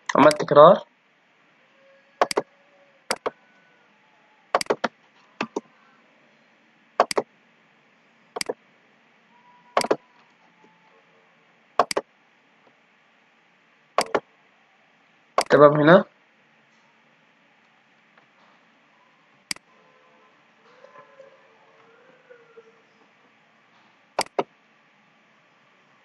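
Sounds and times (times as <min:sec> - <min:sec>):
computer mouse button clicks: 0:02.2 - 0:02.4, 0:03.1 - 0:03.3, 0:04.6 - 0:05.6, 0:07.0 - 0:07.2, 0:08.4 - 0:08.6, 0:09.8 - 0:10.0, 0:11.8 - 0:12.0, 0:14.0 - 0:14.2, 0:24.2 - 0:24.5.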